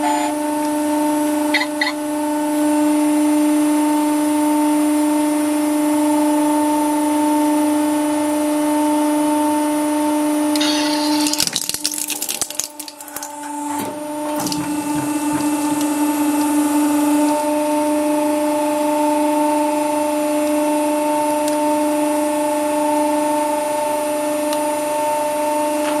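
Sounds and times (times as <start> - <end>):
metal and plastic cracking: 11.2 - 17.4
hydraulic press motor humming: 12.8 - 18.9.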